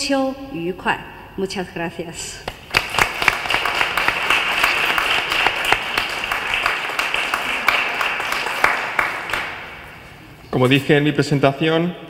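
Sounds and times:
audience applauding: 0:02.6 - 0:09.9.

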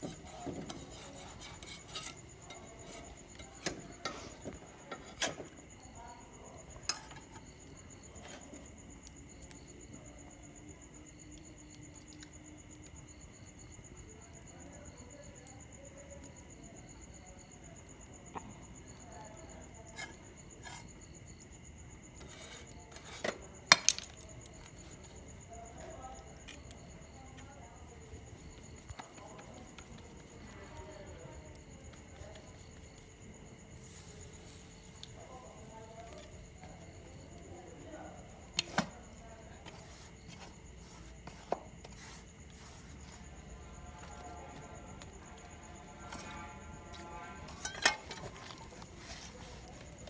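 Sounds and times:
scrape on iron griddle: 0:00.0 - 0:05.6, 0:06.8 - 0:07.5, 0:08.2 - 0:08.6, 0:19.6 - 0:21.0, 0:22.2 - 0:26.5, 0:33.7 - 0:35.1, 0:39.6 - 0:44.4, 0:45.8 - 0:50.0
wood fire crackling and popping: 0:00.0 - 0:50.0
metal clinks on griddle: 0:47.5 - 0:48.6.

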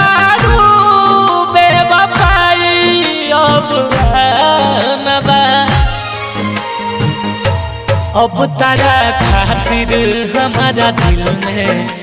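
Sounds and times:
deep bass drum hit: 0:09.2 - 0:10.3.

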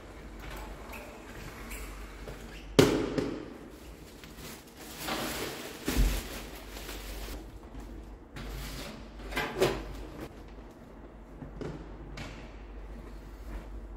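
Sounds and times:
plastic bag rustling: 0:03.7 - 0:07.4.

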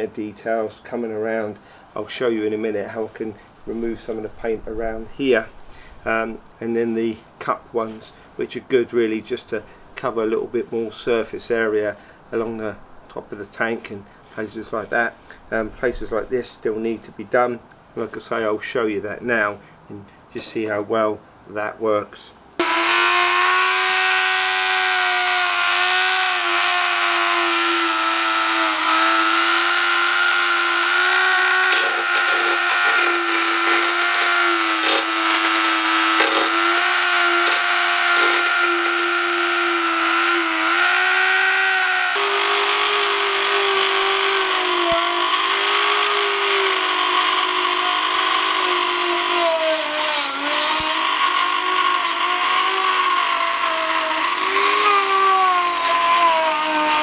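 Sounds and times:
rotary tool wire brush on metal: 0:23.0 - 0:57.0.

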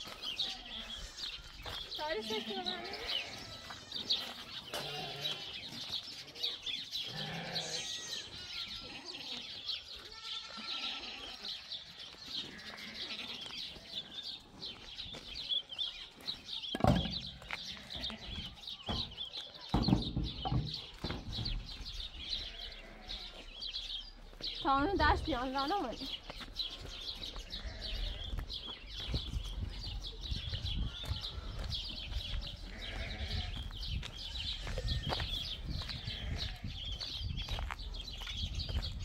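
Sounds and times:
small birds chirping: 0:00.0 - 0:39.0
goats bleating: 0:02.2 - 0:05.7, 0:07.0 - 0:14.2, 0:17.5 - 0:18.6, 0:22.2 - 0:23.5, 0:26.7 - 0:28.4, 0:32.6 - 0:33.7.

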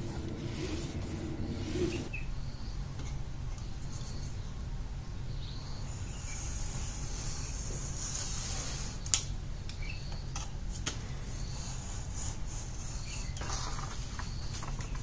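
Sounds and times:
utility knife scoring paper: 0:00.0 - 0:02.1
steady low hum: 0:00.0 - 0:15.0.

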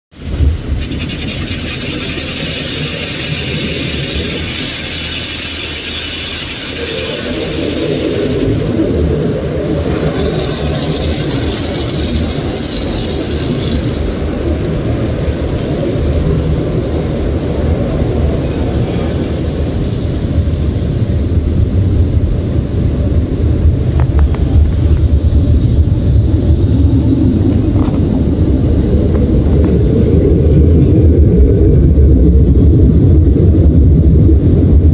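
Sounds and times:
car wash machinery rumble: 0:00.1 - 0:34.9
water spraying against car: 0:00.2 - 0:21.8.

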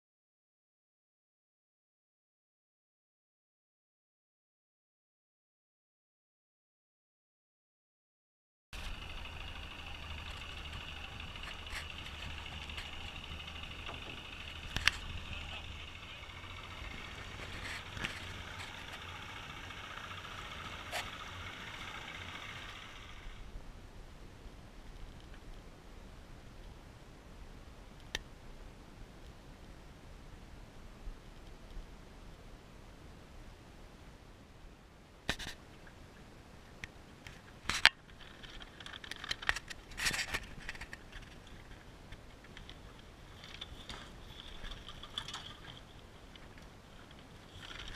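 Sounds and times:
boat rigging knocks and clicks: 0:08.8 - 0:22.1, 0:36.8 - 0:47.9
water rushing along hull: 0:08.8 - 0:23.5
outboard motor running: 0:08.8 - 0:23.6, 0:42.5 - 0:47.9.

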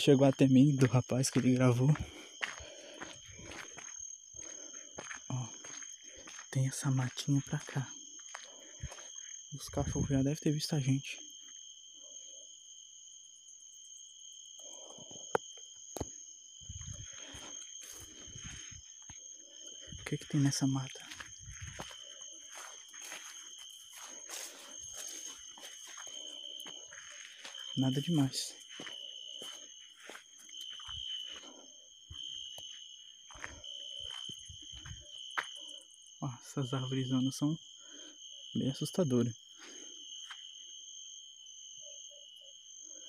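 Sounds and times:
footsteps on dirt path: 0:00.0 - 0:10.2, 0:14.6 - 0:36.4, 0:39.3 - 0:40.7
night insects trilling: 0:00.0 - 0:43.0.

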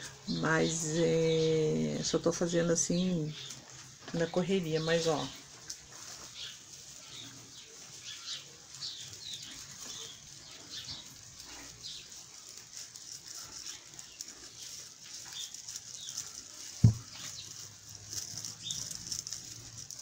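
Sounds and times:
artificial pine decoration rustling: 0:00.0 - 0:20.0.

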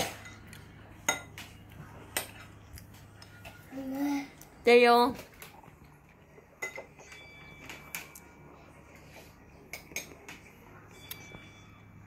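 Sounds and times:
metal spoons clinking on dishes: 0:00.0 - 0:02.5, 0:06.5 - 0:08.4.

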